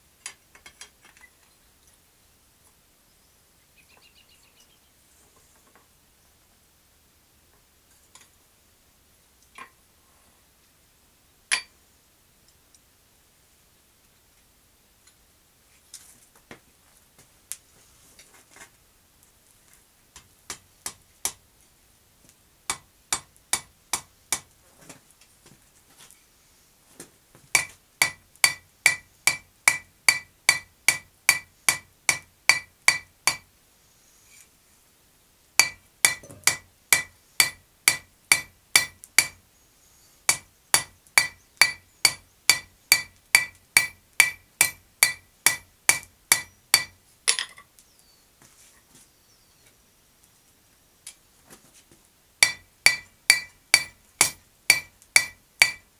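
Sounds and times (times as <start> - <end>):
hammer ringing on anvil: 35.6 - 39.4, 40.3 - 46.9, 52.4 - 55.8.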